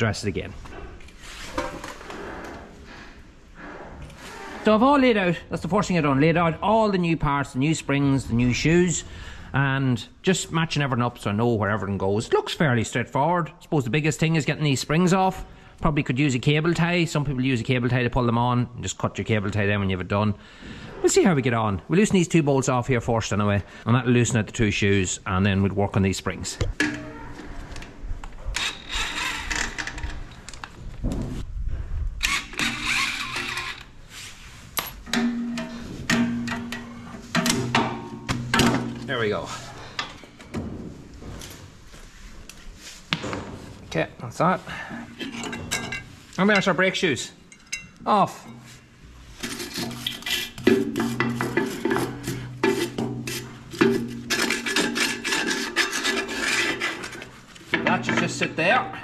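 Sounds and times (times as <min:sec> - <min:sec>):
metal scraping against metal: 0:32.2 - 0:40.4, 0:44.7 - 0:58.8.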